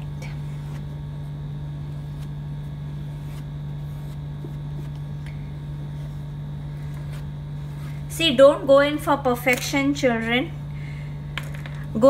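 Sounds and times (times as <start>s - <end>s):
low steady hum: 0.0s - 12.0s
pastel scratching on paper: 2.9s - 5.0s.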